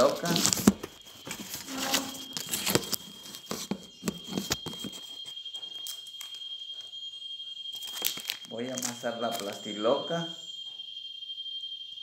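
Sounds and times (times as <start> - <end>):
faint high-pitched tone: 0.0 - 12.0.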